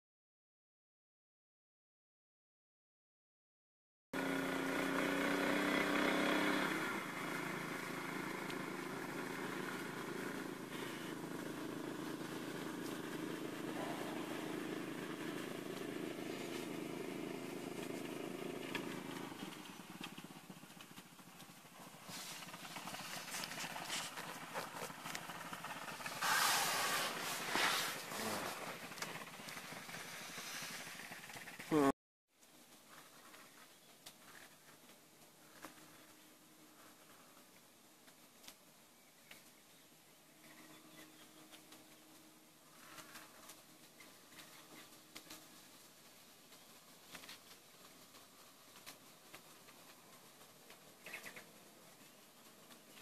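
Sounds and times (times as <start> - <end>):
distant engine running: 4.2 - 31.9
rustling noise: 21.8 - 25.1, 26.0 - 31.0.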